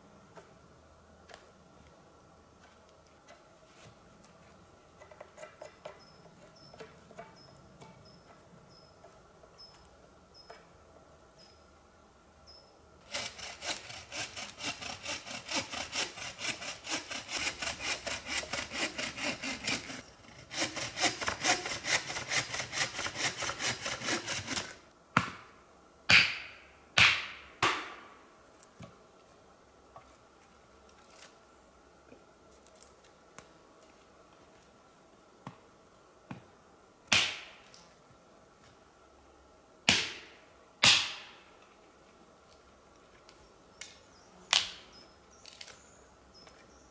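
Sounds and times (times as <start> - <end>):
hand saw cutting wood: 13.0 - 24.8.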